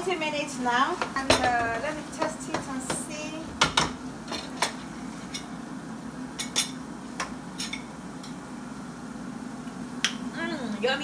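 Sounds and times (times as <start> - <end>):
utensils clinking on plate and pot: 6.4 - 6.8.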